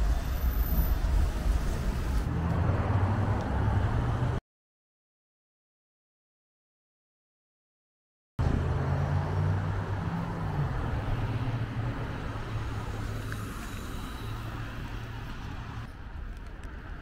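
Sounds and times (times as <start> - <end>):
steady traffic noise: 0.0 - 4.4, 8.4 - 17.0.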